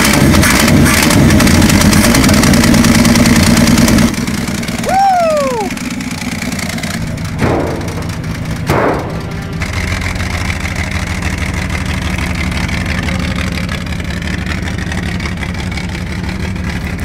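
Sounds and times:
pickup truck engine running: 0.0 - 17.0
man saying ooh: 4.8 - 5.8.

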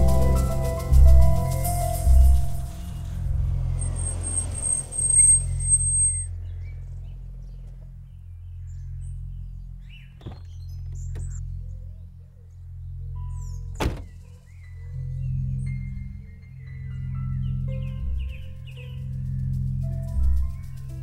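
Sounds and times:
mallet percussion music: 0.0 - 3.7
thin high steady tone: 0.0 - 6.3
low rumbling drone: 0.0 - 21.0.

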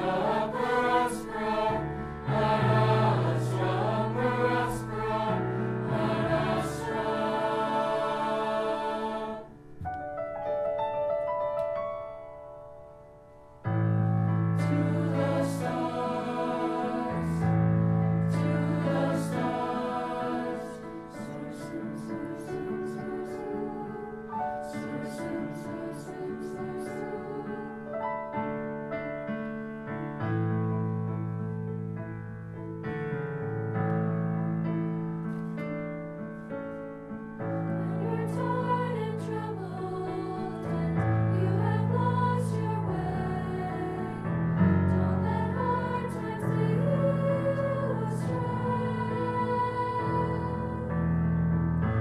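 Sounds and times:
choir singing held notes: 0.0 - 10.0, 14.6 - 27.9, 37.7 - 50.9.

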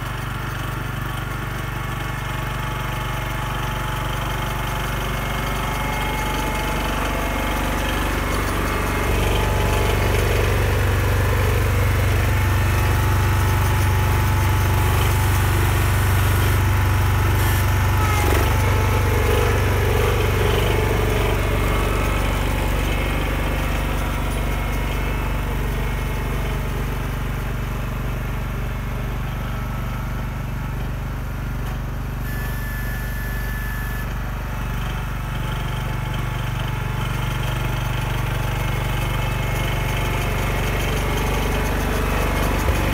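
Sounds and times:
garden tractor engine running: 0.0 - 42.9.

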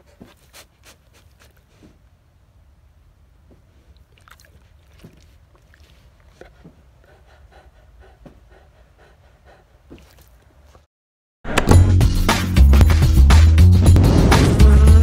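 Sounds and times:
dog breathing: 0.0 - 2.0, 4.6 - 10.4
low rumble: 12.7 - 15.0.

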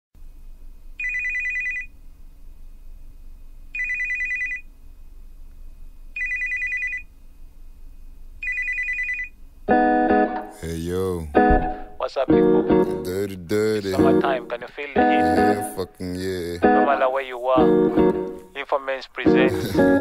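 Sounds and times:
telephone ringing two-tone trill: 1.0 - 1.9, 3.8 - 4.6, 6.2 - 7.1, 8.4 - 9.4.

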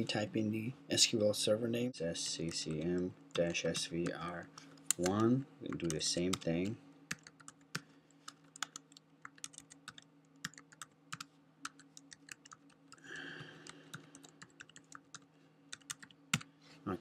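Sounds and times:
faint low hum: 0.0 - 17.0
keyboard typing: 4.9 - 16.5.

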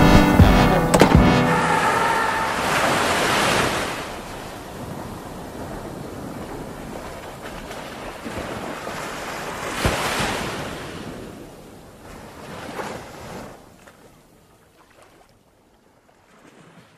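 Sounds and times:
sharp thump: 0.0 - 1.7
waves breaking: 0.0 - 16.9.

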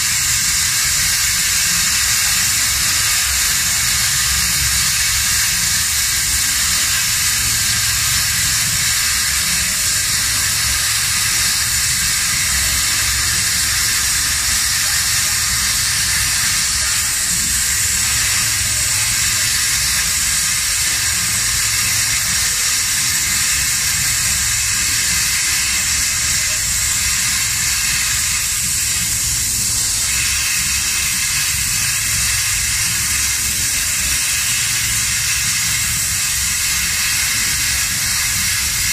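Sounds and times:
plasma torch hissing: 0.0 - 38.9.

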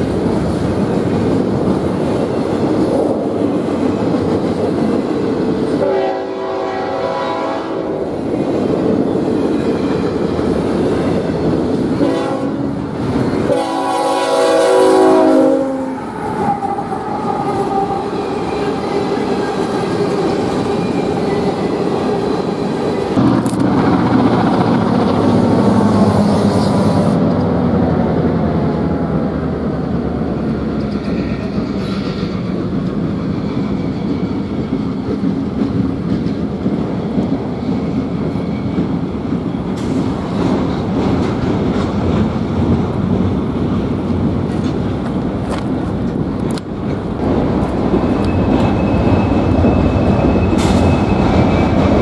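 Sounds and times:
freight train wheels rumbling: 0.0 - 52.0
locomotive air horn: 5.8 - 8.0, 12.0 - 12.8, 13.5 - 16.0.

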